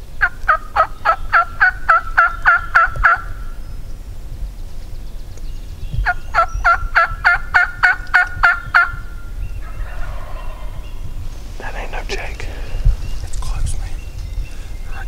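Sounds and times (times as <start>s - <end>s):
turkey yelping: 9.6s - 11.2s.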